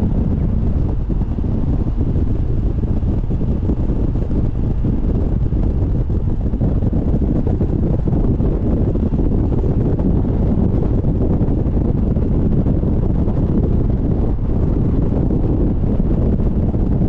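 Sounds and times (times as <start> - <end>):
car engine rumble: 0.0 - 17.0
wind buffeting microphone: 0.0 - 17.0.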